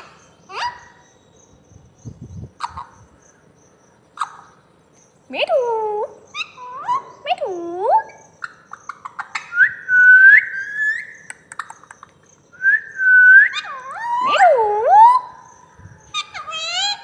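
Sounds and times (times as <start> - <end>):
parakeet clicks: 11.2 - 12.4.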